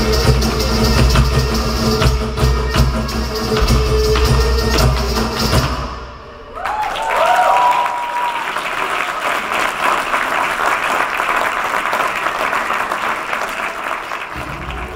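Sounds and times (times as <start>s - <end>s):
cheers and whoops: 6.5s - 9.3s
audience applauding: 6.6s - 14.9s.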